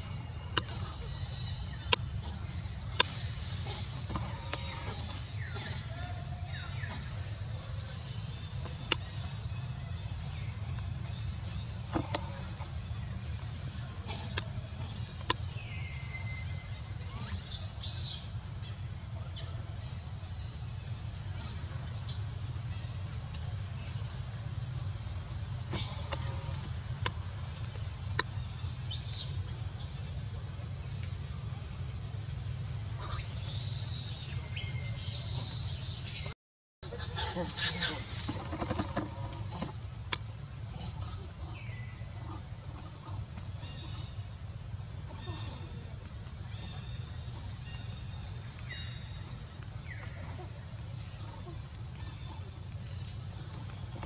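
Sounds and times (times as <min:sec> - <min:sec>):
leaves and branches rustling: 0:00.0 - 0:19.5, 0:20.4 - 0:54.0.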